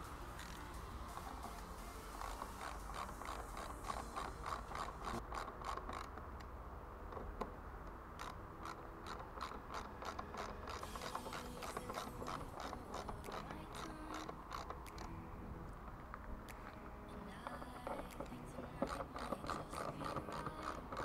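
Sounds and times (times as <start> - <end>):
hand ratchet clicking rapidly: 0.4 - 6.1, 18.8 - 21.0.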